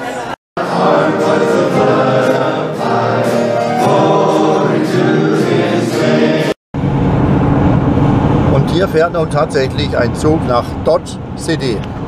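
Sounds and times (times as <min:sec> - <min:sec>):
congregation singing: 0:00.6 - 0:06.6.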